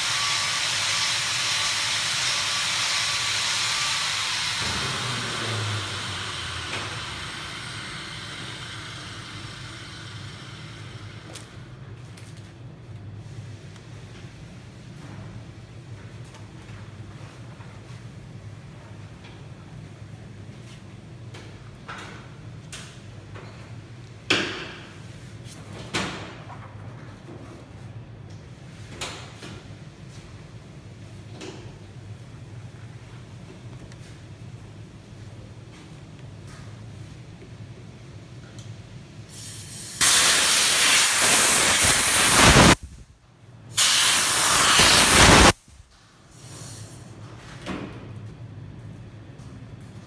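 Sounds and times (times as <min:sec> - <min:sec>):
steady hiss: 0:39.3 - 0:43.1, 0:43.7 - 0:47.0.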